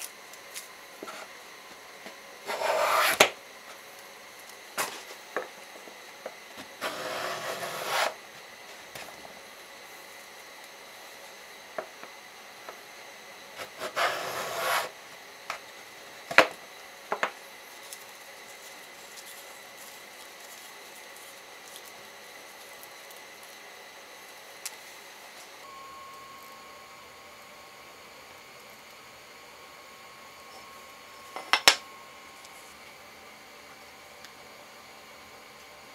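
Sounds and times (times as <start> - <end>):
faint steady hum: 0.0 - 35.9
wood scraping rub: 2.5 - 3.3, 6.7 - 8.2, 13.6 - 14.9.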